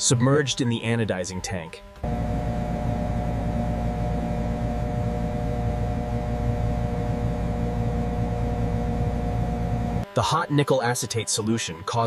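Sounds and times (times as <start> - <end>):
low industrial hum and rumble: 2.0 - 10.0
faint steady tones: 2.0 - 10.1.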